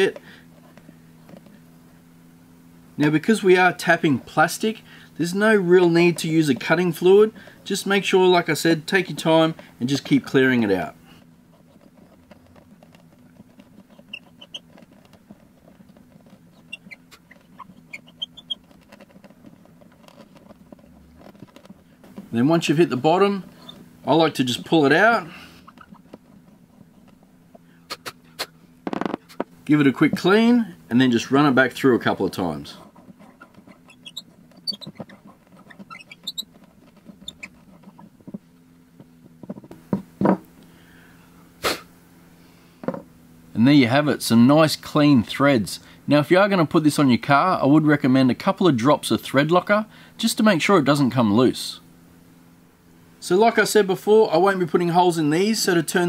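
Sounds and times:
short high squeaks: 0:11.6 - 0:29.6, 0:32.0 - 0:38.4
hand tap creaking and clicking: 0:28.9 - 0:29.5.

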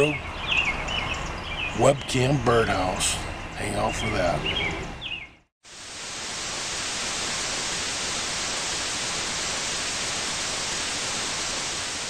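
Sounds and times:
television static hiss: 0:05.7 - 0:12.0.

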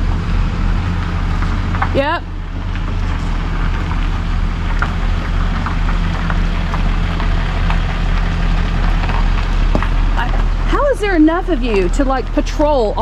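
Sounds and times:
truck engine humming: 0:00.0 - 0:13.0.

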